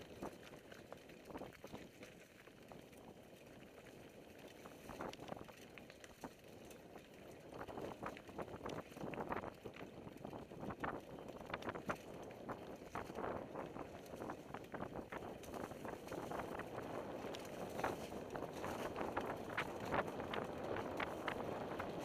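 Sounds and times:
bike tyres crunching on dirt: 0.0 - 22.0
wind on microphone: 7.5 - 22.0
bike rattling and knocking: 10.2 - 22.0.

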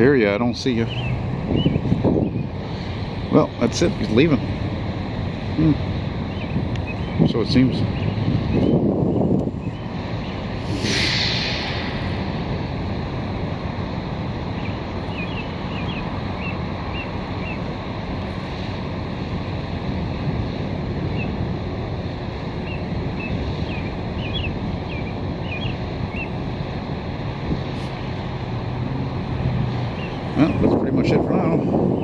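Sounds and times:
wind rumble on microphone: 0.0 - 32.0
bird chirping: 0.8 - 2.5, 7.9 - 12.0, 14.6 - 17.6.

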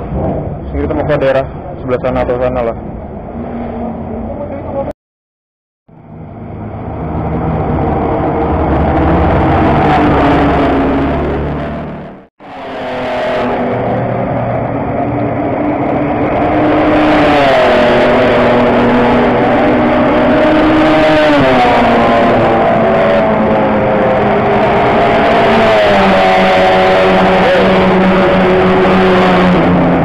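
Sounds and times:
race car engine at high revs: 6.0 - 30.0.

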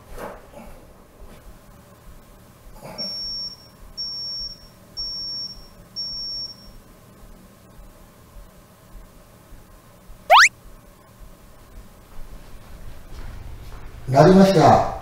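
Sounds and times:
high-pitched electronic beeps: 10.3 - 10.5.

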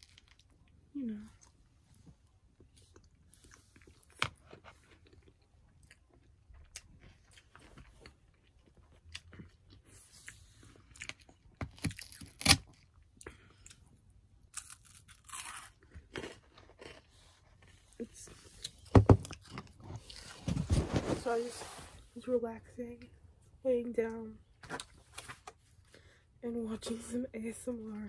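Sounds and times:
person chewing: 2.5 - 20.3.

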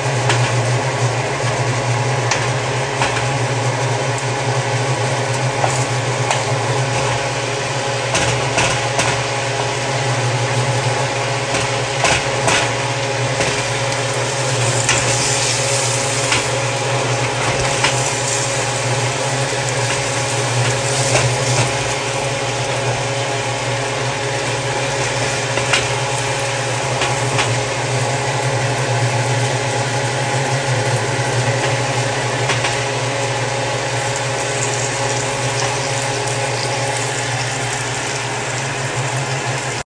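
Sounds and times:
motor humming: 0.0 - 39.8
spatula scraping frying pan: 11.5 - 22.3.

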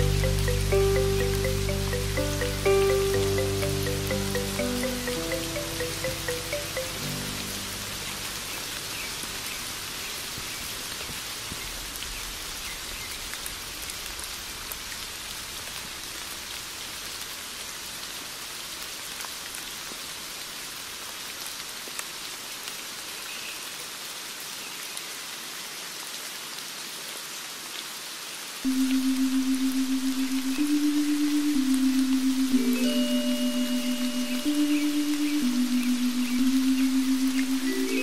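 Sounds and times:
music: 0.0 - 9.3, 28.7 - 38.0
steady rain falling: 0.0 - 38.0.

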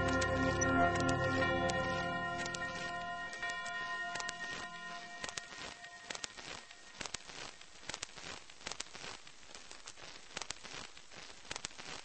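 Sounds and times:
steady hiss: 1.6 - 12.0
sharp crackling clicks: 3.3 - 12.0.

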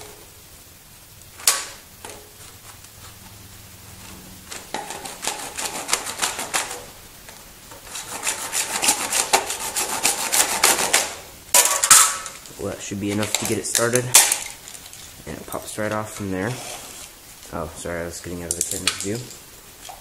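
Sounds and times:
hand saw cutting plastic: 4.5 - 6.9, 7.8 - 11.2.

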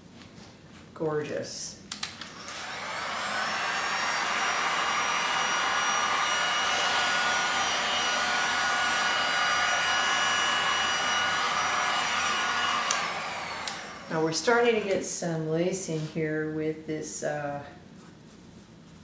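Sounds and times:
heat gun blowing air: 2.2 - 15.2.

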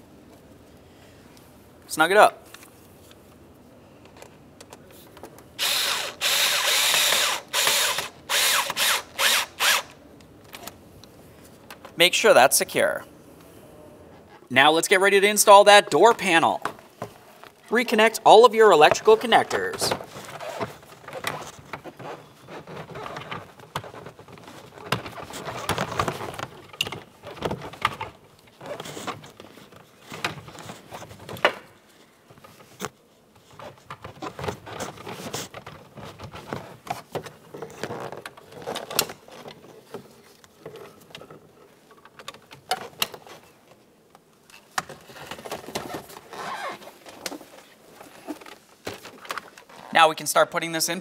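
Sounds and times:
rustling and knocking of wires: 18.8 - 49.9.

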